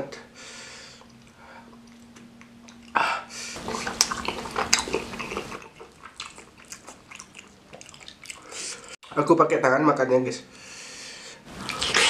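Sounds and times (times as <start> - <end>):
wet eating sounds: 3.6 - 9.0, 11.5 - 12.0.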